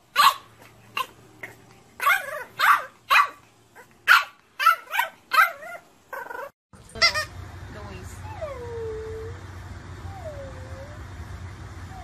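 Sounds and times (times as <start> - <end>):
puppy barking: 0.1 - 5.8.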